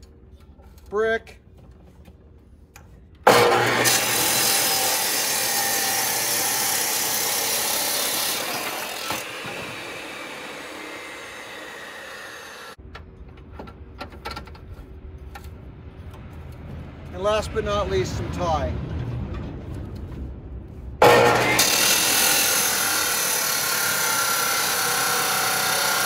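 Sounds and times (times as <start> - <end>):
chop saw cutting brick: 3.3 - 12.8, 21.0 - 26.0.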